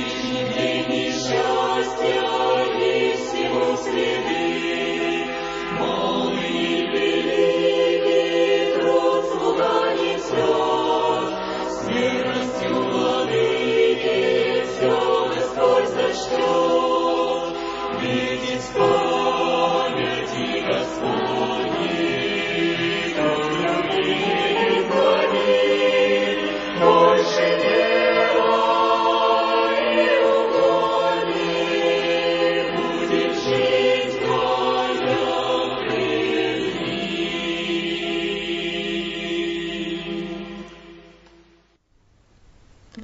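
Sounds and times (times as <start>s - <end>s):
choir singing sustained chords: 0.0s - 41.8s.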